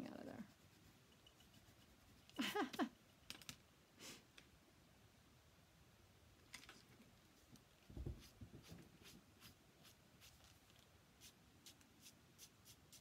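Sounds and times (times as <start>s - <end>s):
soft thump: 7.9s - 8.2s.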